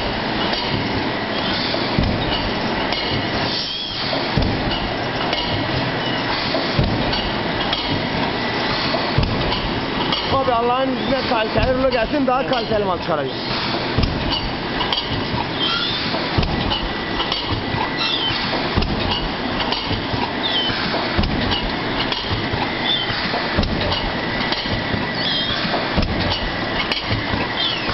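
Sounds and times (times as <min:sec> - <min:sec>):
thermoforming machine running: 0:00.0 - 0:27.9
regular mechanical knock: 0:02.0 - 0:05.9, 0:06.5 - 0:08.1, 0:08.8 - 0:10.6, 0:11.2 - 0:12.8, 0:13.7 - 0:27.9
short high squeaks: 0:03.5 - 0:04.1, 0:15.6 - 0:16.1, 0:18.0 - 0:18.5, 0:20.4 - 0:20.8, 0:22.8 - 0:23.2, 0:25.1 - 0:25.7, 0:27.6 - 0:27.9.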